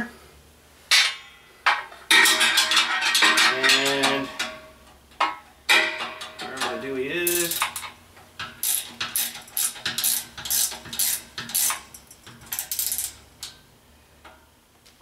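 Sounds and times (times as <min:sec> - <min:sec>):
ratchet wrench clicking: 0:06.6 - 0:13.6.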